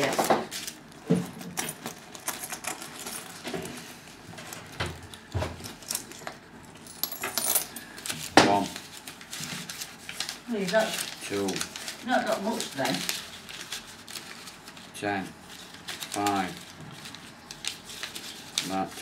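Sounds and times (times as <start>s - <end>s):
coins clinking and rattling: 1.6s - 3.4s, 5.7s - 7.8s.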